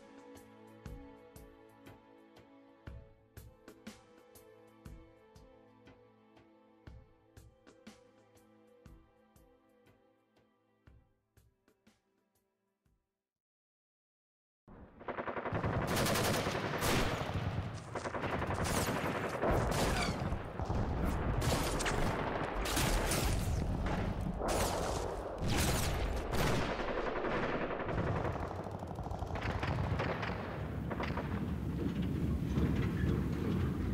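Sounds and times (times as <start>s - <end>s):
dense gunfire: 14.7s - 32.8s.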